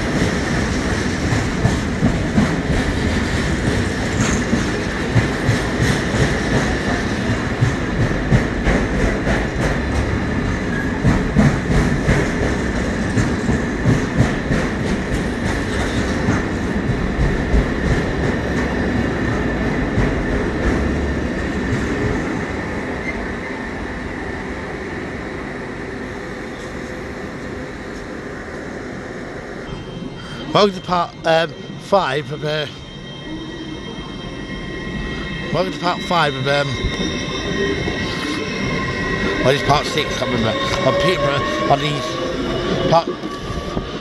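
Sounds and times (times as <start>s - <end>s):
train wheels clattering over rail joints: 0.0s - 22.3s.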